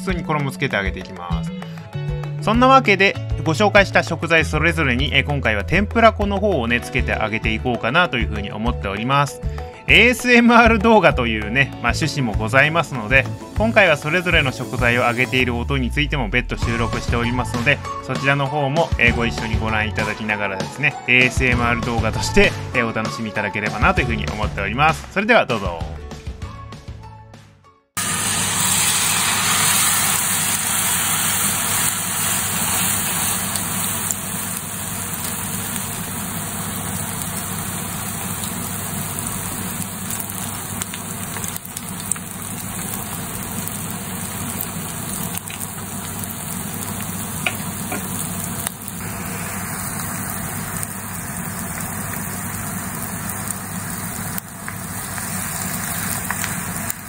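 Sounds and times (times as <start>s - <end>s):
noodles deep-frying in oil: 28.0s - 57.0s.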